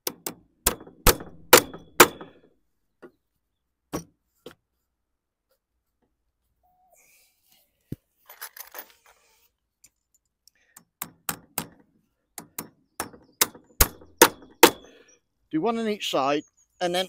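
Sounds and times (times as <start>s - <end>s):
hammer striking nails into metal: 0.0s - 2.4s, 12.4s - 14.9s.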